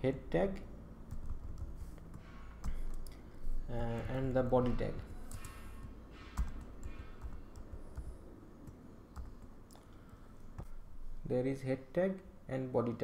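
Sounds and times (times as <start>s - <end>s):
computer keyboard keystrokes: 4.6s - 9.8s.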